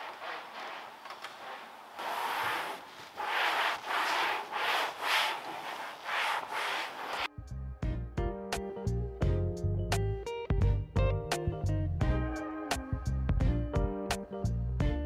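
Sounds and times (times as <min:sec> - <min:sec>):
hand scrubbing car surface: 0:00.0 - 0:07.3
music: 0:07.3 - 0:15.0.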